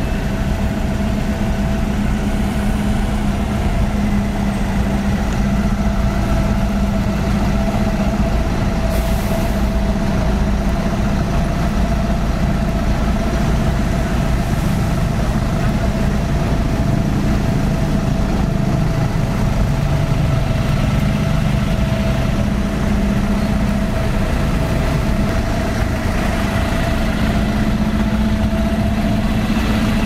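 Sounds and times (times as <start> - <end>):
diesel truck engine idling: 0.0 - 30.0.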